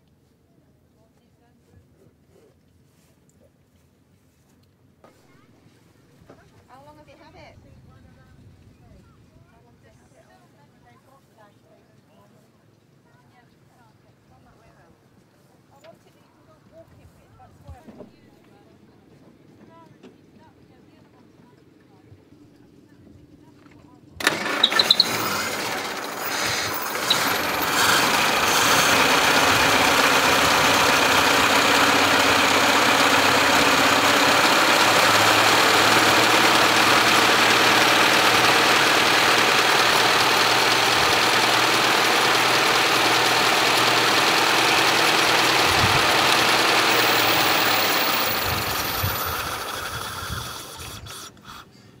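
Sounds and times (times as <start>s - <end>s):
car engine running: 24.2s - 51.0s.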